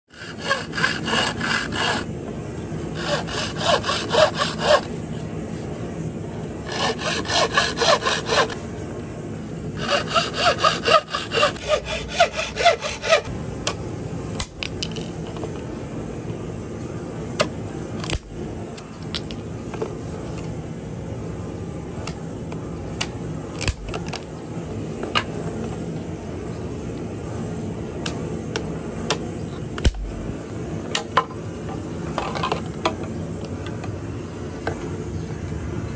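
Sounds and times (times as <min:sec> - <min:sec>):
hand saw cutting bamboo: 0:00.1 - 0:02.1, 0:02.9 - 0:05.0, 0:06.6 - 0:08.6, 0:09.8 - 0:13.3.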